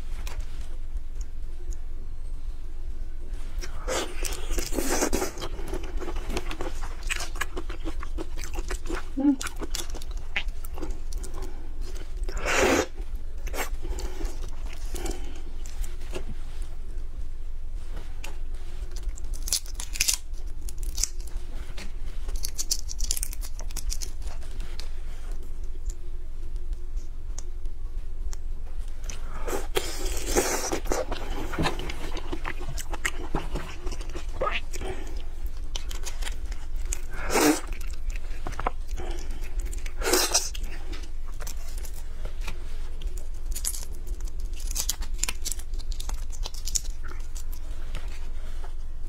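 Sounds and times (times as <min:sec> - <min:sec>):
crunchy chewing: 0:03.5 - 0:16.6, 0:18.2 - 0:27.6, 0:28.3 - 0:49.0
prawn shell cracking and tearing: 0:18.9 - 0:24.6, 0:29.7 - 0:48.0.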